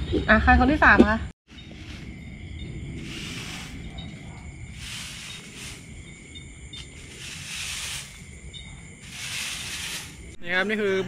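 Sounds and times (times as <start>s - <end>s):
low outdoor rumble: 0.0s - 10.4s
crickets trilling: 0.0s - 11.0s.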